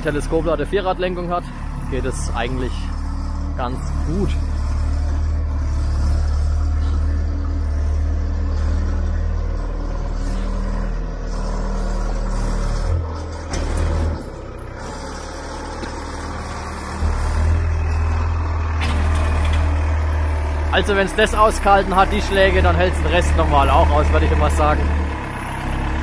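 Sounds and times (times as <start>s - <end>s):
telehandler engine drone: 0.0s - 26.0s.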